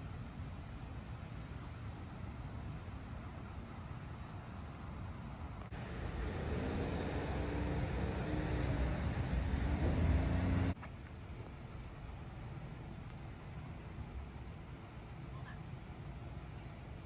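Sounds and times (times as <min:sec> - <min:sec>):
outdoor background hiss: 0:00.0 - 0:17.0
vehicle engine hum: 0:05.7 - 0:10.8.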